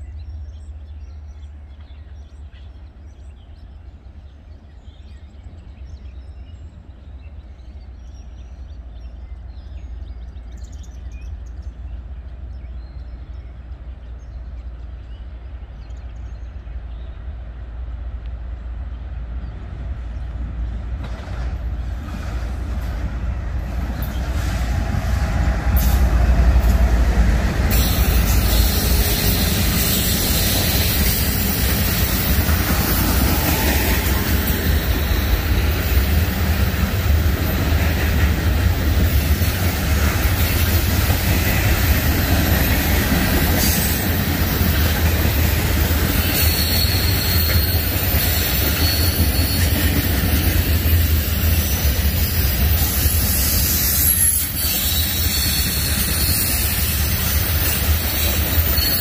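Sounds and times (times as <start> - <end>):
diesel locomotive engine rumble: 0.0 - 59.0
train rushing hiss on rails: 20.7 - 59.0.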